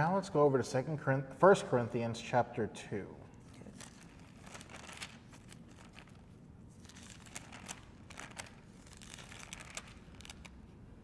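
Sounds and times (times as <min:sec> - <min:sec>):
thin pages being flipped: 0:03.4 - 0:10.8.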